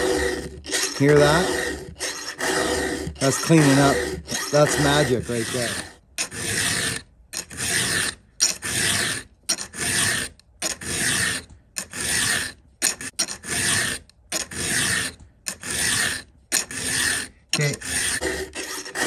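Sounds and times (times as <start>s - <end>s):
file clicking: 0.0s - 19.0s
file rasping on metal chain tooth: 0.0s - 19.0s.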